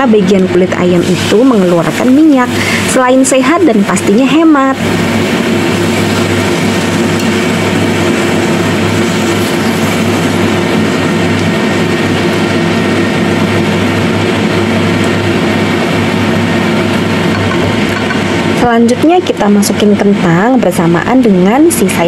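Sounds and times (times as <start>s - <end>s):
constant low hum: 0.0s - 22.0s
chicken wings sizzling in oil: 0.5s - 18.6s.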